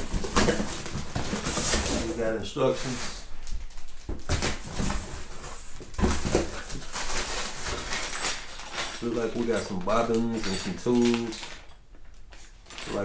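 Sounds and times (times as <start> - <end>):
packaging rustling: 0.0 - 13.0
small bagged parts knocking: 5.8 - 13.0.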